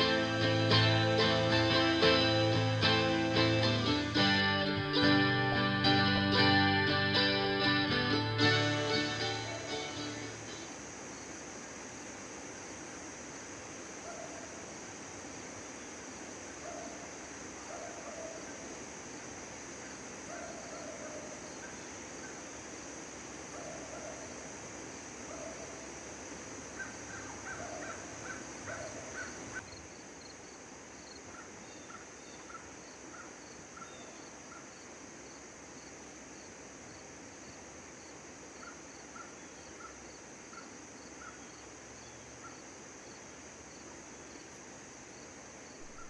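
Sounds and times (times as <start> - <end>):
insect drone: 0.0 - 46.0
faint repeated chirping: 45.7 - 46.0.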